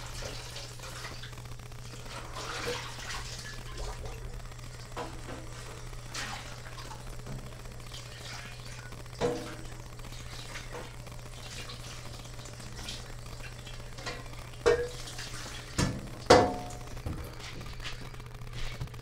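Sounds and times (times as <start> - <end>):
low hum: 0.0 - 19.0
dishes knocking with ringing tone: 14.6 - 15.0, 15.8 - 17.2.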